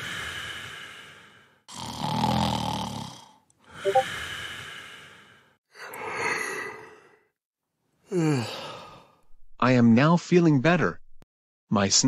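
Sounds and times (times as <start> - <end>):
snoring breaths: 0.0 - 3.4.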